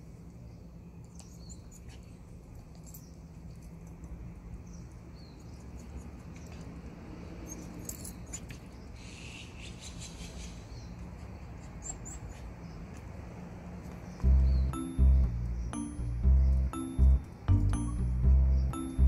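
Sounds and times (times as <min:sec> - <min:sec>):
low hum: 0:14.2 - 0:19.0.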